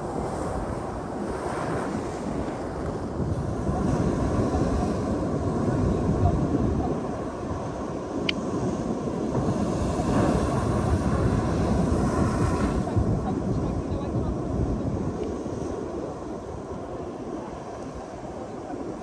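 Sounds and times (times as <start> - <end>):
ocean surf breaking on rock: 0.0 - 19.0.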